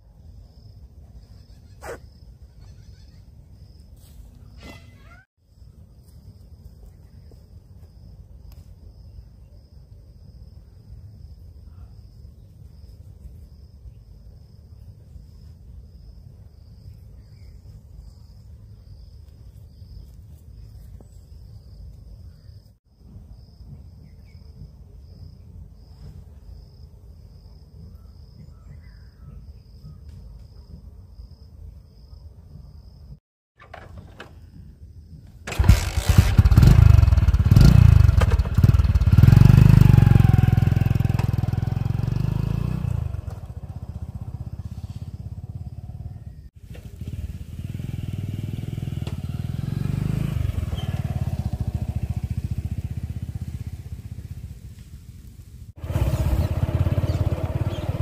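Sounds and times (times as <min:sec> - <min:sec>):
faint bird chirps: 0:00.0 - 0:05.3, 0:16.4 - 0:22.8, 0:27.4 - 0:30.8, 0:50.7 - 0:51.2, 0:56.0 - 0:58.0
insect calling in steady pulse: 0:00.0 - 0:05.8, 0:56.0 - 0:58.0.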